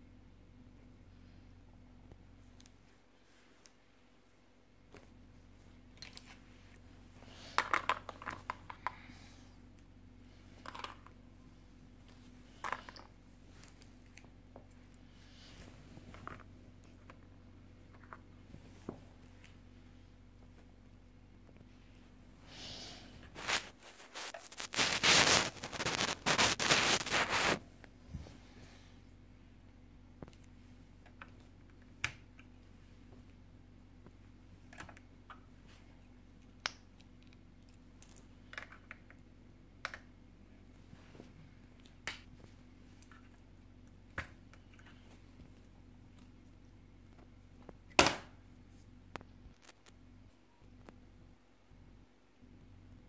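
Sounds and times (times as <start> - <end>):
low steady hum: 0.0 - 53.0
hands rustling plastic toy: 6.0 - 9.2, 10.4 - 11.2, 12.0 - 19.7, 23.2 - 28.3.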